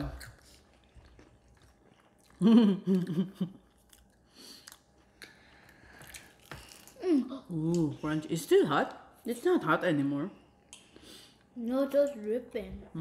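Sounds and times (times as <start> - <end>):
people chewing crisp pastry: 0.0 - 7.9.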